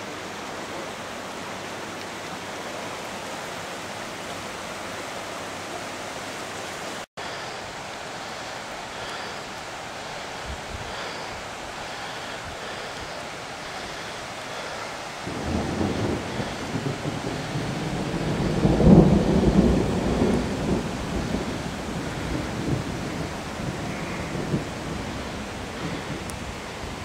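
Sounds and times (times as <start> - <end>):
running floodwater rushing: 0.0 - 27.0
thunder rumbling: 14.5 - 27.0.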